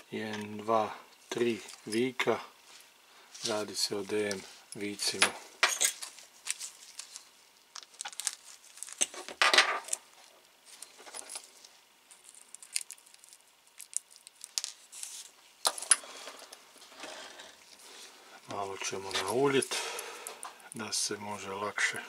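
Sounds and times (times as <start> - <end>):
small screws clicking and clinking: 12.1 - 14.8.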